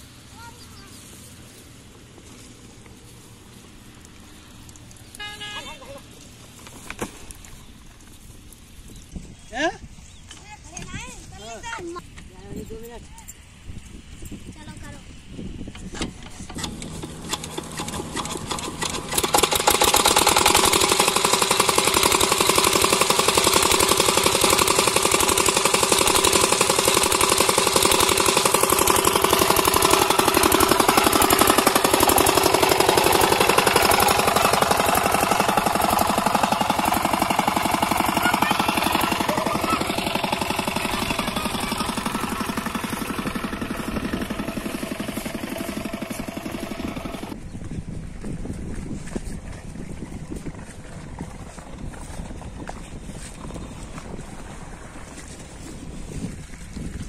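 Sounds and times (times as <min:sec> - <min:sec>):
diesel engine starting and knocking: 0:15.6 - 0:47.4.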